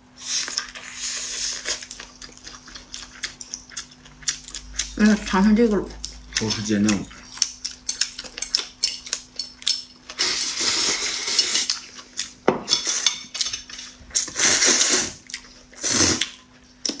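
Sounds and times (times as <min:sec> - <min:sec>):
noodles slurped: 0:10.1 - 0:11.8, 0:14.2 - 0:15.2, 0:15.8 - 0:16.4.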